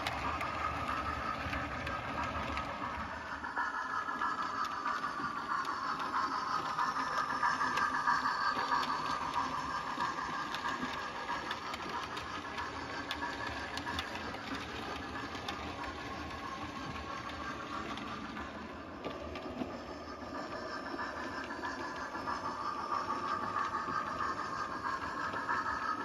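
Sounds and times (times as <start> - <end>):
model train running on track: 0.0 - 26.0
wheels clicking on rails: 0.0 - 26.0.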